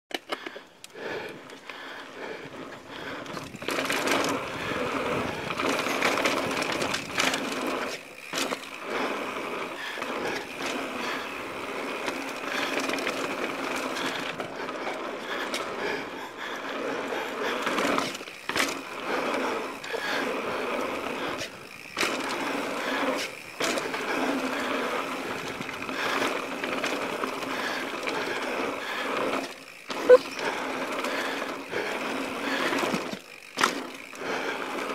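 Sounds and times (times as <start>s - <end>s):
tyre noise on dirt: 2.5s - 15.8s
bike clattering over bumps: 2.9s - 15.8s, 17.4s - 34.9s.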